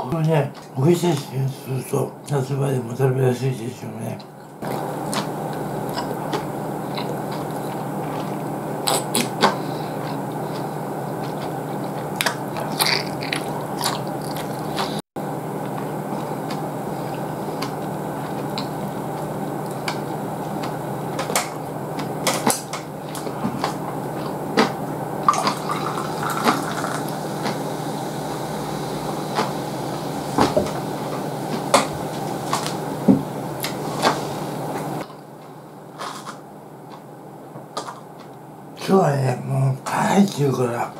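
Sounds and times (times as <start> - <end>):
steady hum: 0.0 - 40.9
chewing: 4.6 - 15.0, 15.6 - 27.7
beer pouring into a glass: 25.3 - 27.1.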